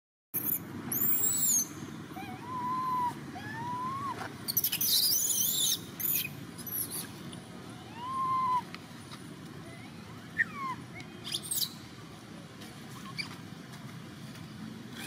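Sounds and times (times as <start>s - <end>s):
baby monkey crying: 2.2s - 7.1s.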